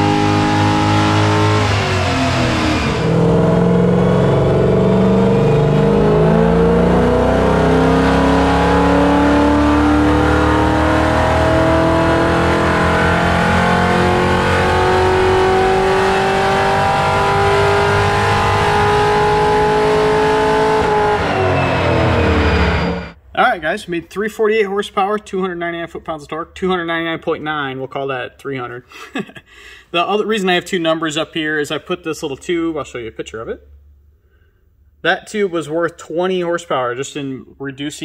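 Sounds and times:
engine revving on dyno: 0.0 - 23.2.

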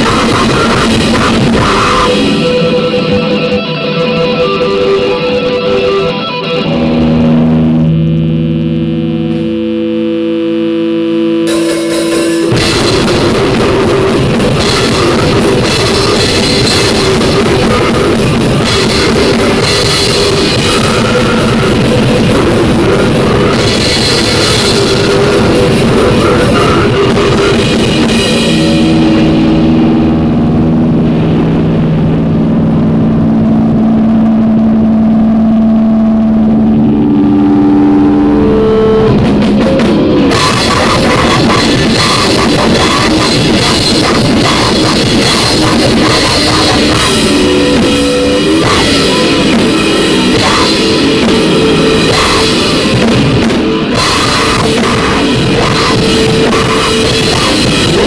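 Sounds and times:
drum-like crashes: 0.0 - 3.3, 11.4 - 34.1, 38.9 - 58.0
harsh distorted noise music: 0.0 - 58.0
held low drones: 0.0 - 58.0.

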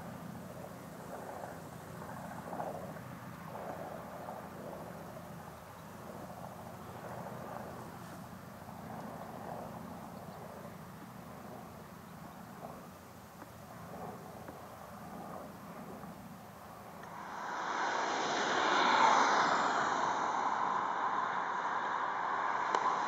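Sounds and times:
faint propeller aircraft drone: 0.0 - 23.0
wavering rushing noise: 17.0 - 23.0.

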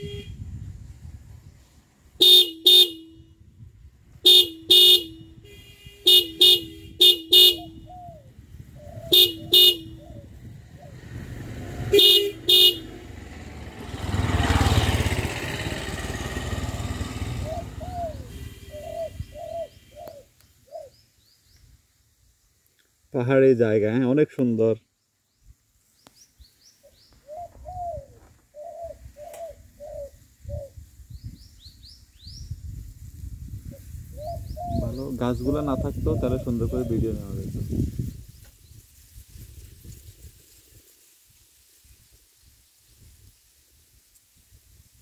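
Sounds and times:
vehicle horn double beeps: 0.0 - 0.5, 2.2 - 3.5, 4.2 - 7.9, 9.1 - 10.0, 11.8 - 13.0, 18.2 - 20.2
vehicle passing: 10.6 - 19.2.

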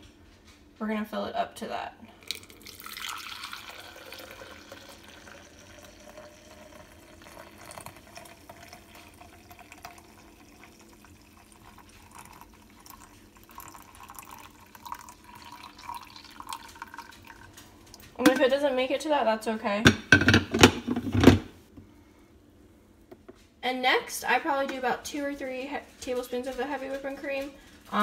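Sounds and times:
coffee pouring into plastic cup: 2.1 - 18.1.

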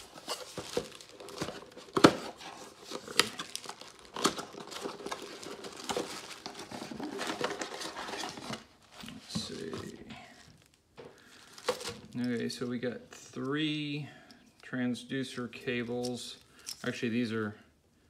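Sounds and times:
plastic wrap crinkling: 0.0 - 12.9.

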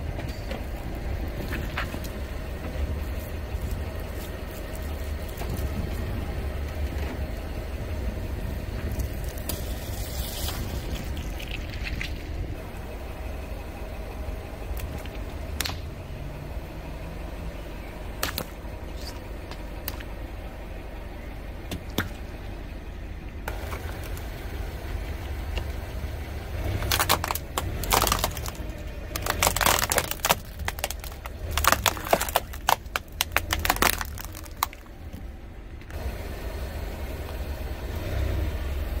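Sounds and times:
car engine idling: 0.0 - 39.0
plastic cracking and crunching: 26.7 - 35.2.

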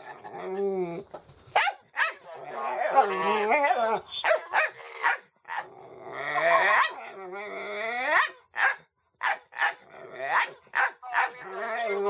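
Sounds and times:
dog barking: 1.5 - 2.3, 4.2 - 5.6, 6.6 - 7.0, 8.1 - 11.4
dog growling cries: 2.3 - 4.1, 4.7 - 8.4, 9.6 - 10.6, 11.2 - 12.0.

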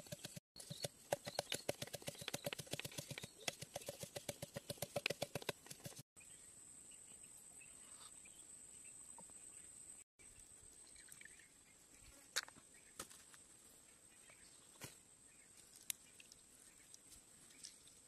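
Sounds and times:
stick knocking in bamboo tube: 0.0 - 6.0.

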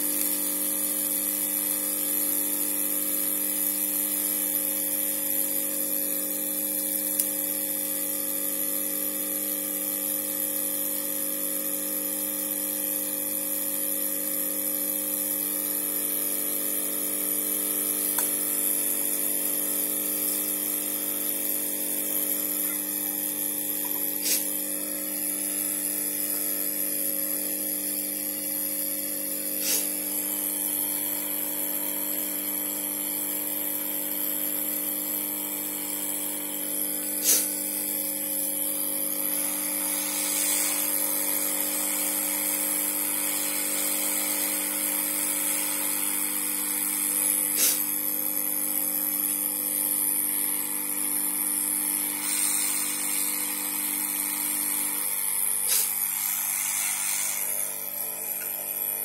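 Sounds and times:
hot air station hissing: 17.0 - 26.4, 29.5 - 30.7, 37.0 - 48.1, 49.8 - 59.0.

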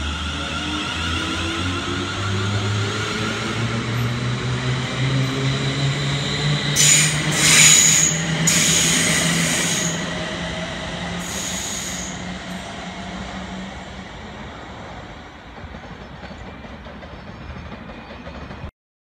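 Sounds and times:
electric train motor whine: 5.3 - 13.0
wheels squealing and hissing: 5.7 - 12.8.

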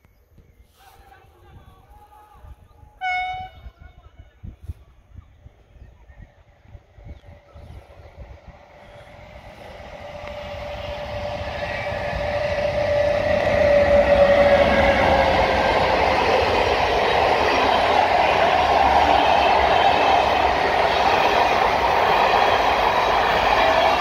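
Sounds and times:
electric locomotive whine: 5.5 - 24.0
train coaches rumbling: 6.2 - 24.0.

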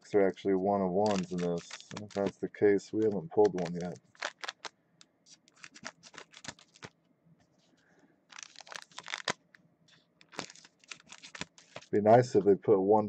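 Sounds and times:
card pack wrappers crinkling and tearing: 1.0 - 2.4, 3.0 - 4.7, 5.3 - 7.0, 8.3 - 9.5, 10.2 - 12.0.

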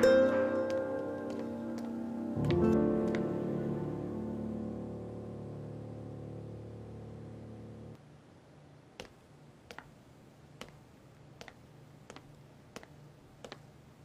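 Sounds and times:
footsteps on hard floor: 0.6 - 3.4, 10.6 - 13.7.

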